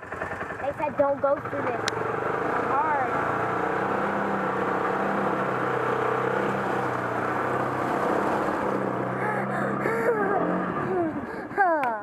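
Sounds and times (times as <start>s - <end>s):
off-road vehicle engine running: 0.0s - 12.0s
vehicle wading through water: 2.0s - 11.5s.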